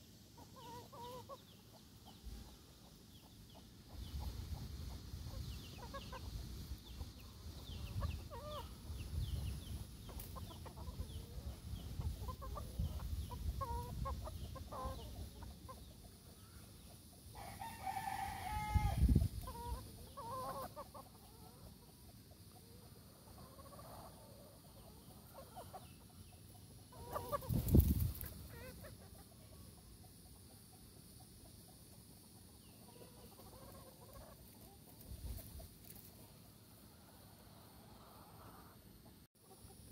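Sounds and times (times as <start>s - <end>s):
chickens clucking: 0.0s - 39.9s
rooster crowing: 17.4s - 19.1s.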